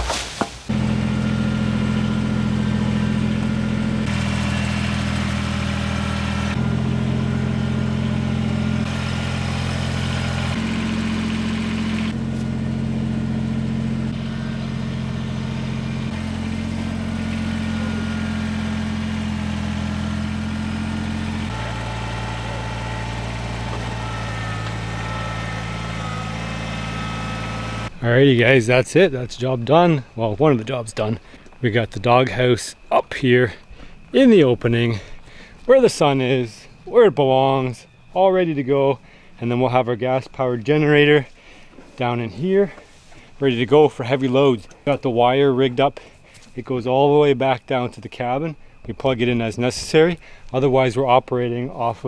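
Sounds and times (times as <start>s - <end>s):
diesel engine running: 0.7s - 28.3s.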